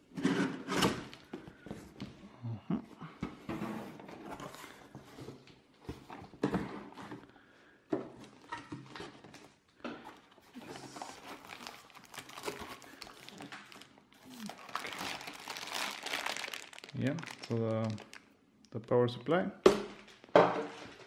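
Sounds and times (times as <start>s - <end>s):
packaging rustling and crinkling: 10.4s - 18.4s.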